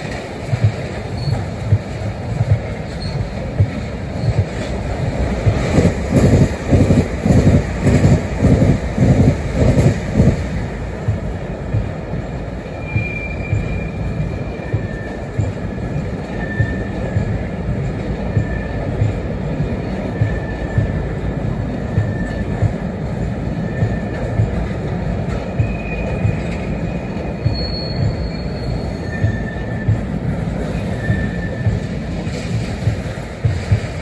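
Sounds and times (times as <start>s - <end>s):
train rumble: 0.0s - 34.0s
train wheels clattering over rail joints: 0.0s - 34.0s
high wheel squeals: 1.1s - 1.6s, 12.7s - 17.3s, 25.5s - 32.0s.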